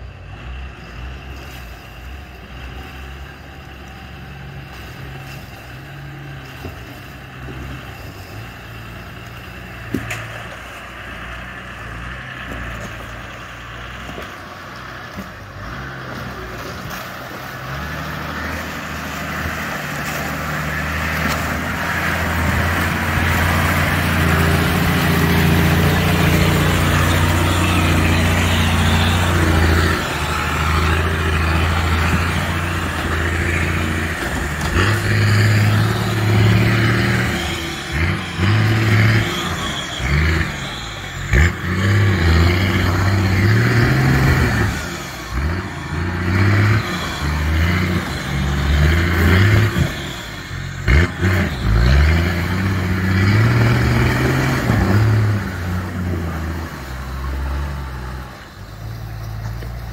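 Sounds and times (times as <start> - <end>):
diesel engine revving: 0.0 - 59.9.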